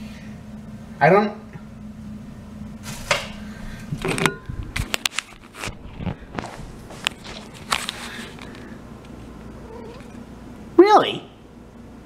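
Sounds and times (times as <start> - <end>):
footsteps: 4.8 - 8.7.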